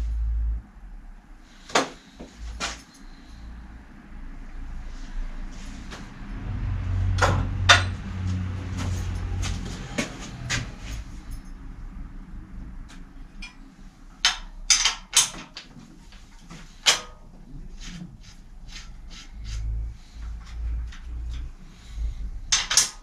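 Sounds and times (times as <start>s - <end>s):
low rumble: 0.0s - 1.5s, 2.3s - 13.3s
hand tools clicking and knocking: 12.9s - 21.6s, 22.5s - 23.0s.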